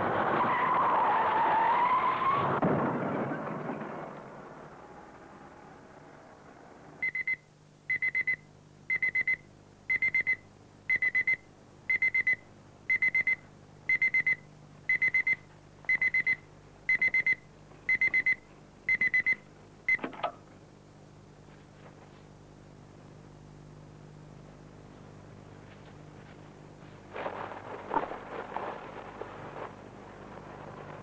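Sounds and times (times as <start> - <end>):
electronic alarm beeping: 7.0 - 20.1.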